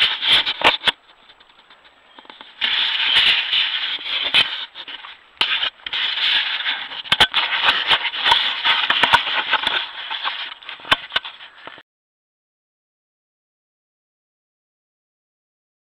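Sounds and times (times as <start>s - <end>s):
hands scraping on camera housing: 0.0s - 11.8s.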